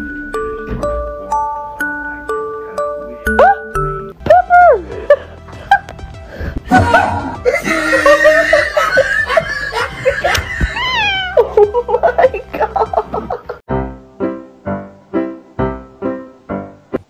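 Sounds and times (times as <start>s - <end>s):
background music: 0.0s - 17.0s
person laughing hard: 6.6s - 13.6s.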